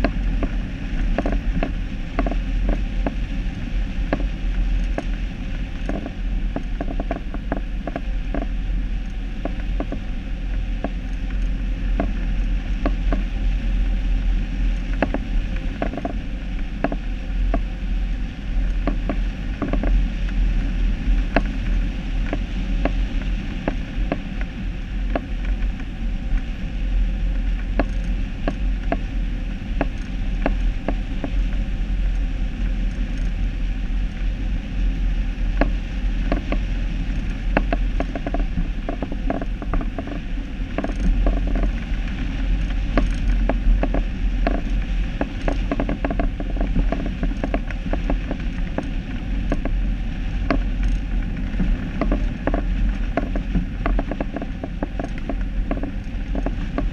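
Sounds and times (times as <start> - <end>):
low rumble: 0.0 - 56.9
mechanism clicking and creaking: 37.6 - 41.8, 50.5 - 51.0.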